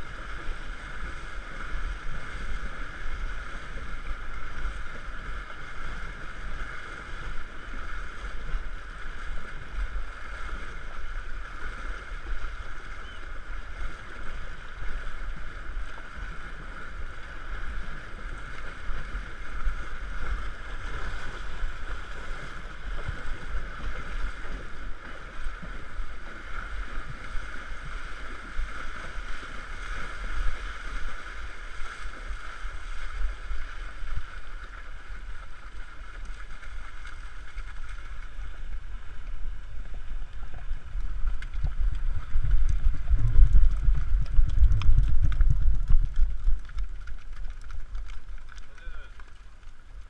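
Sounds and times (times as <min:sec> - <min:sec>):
horse splashing through water: 0:00.0 - 0:50.0
wind on microphone: 0:38.2 - 0:49.1.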